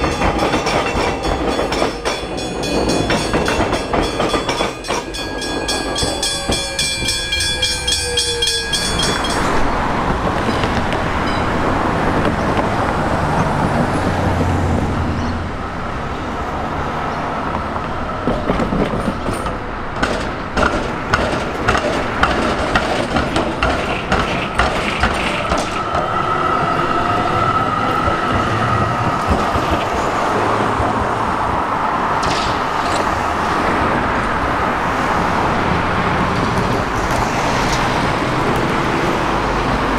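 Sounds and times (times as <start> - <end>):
wheels clicking over rail joints: 0.0 - 13.9, 17.5 - 34.0.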